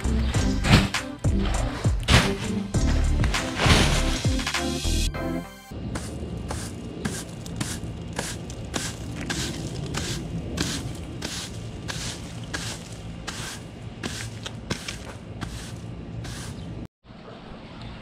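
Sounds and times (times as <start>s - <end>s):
rake scraping pine needles: 0.2s - 4.8s, 6.0s - 16.8s.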